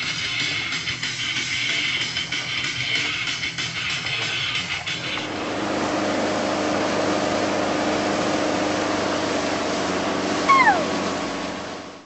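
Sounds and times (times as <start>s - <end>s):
motorboat engine running: 0.0s - 12.0s
short downward sliding call: 10.4s - 11.0s.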